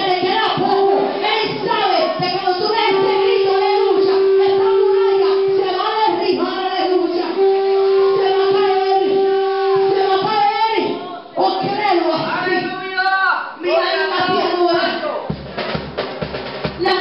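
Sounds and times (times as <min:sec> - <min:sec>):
congregation speaking and singing: 0:00.0 - 0:17.0
long held note: 0:02.8 - 0:06.2, 0:06.8 - 0:10.2.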